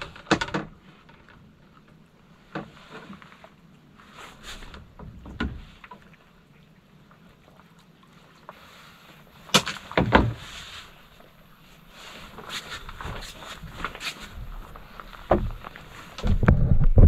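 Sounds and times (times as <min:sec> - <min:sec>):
knocks and clatter on a boat: 0:00.0 - 0:03.6, 0:04.6 - 0:06.2, 0:09.5 - 0:10.6, 0:12.3 - 0:17.0.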